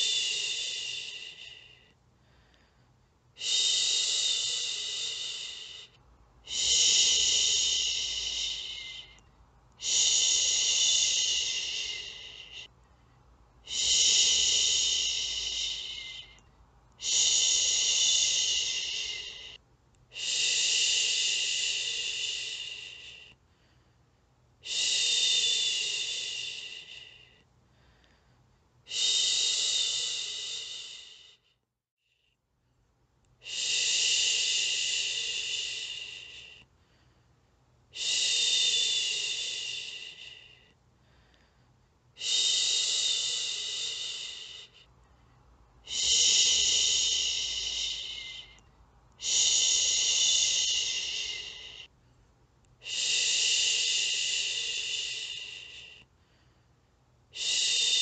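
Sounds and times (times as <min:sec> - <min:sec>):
woman shushing: 0:13.7 - 0:16.4, 0:45.9 - 0:48.6, 0:49.2 - 0:51.9.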